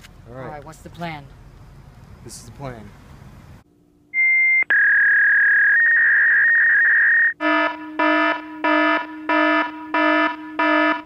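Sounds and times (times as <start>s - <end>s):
electronic alarm beep and tone: 4.2s - 11.0s
harsh pulsing buzzer alarm: 7.3s - 11.0s.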